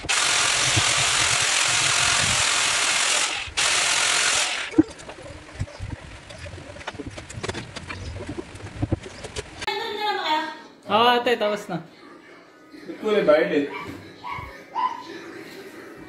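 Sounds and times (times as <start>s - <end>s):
electric drill running: 0.0s - 4.8s.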